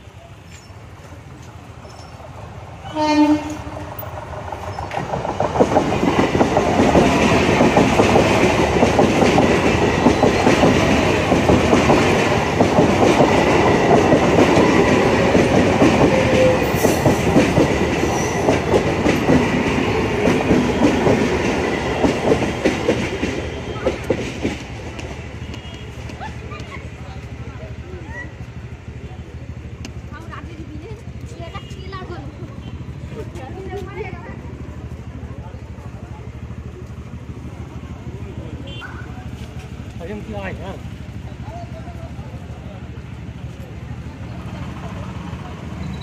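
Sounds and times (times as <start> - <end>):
train passing at speed: 0.0 - 46.0
train horn: 2.8 - 3.9.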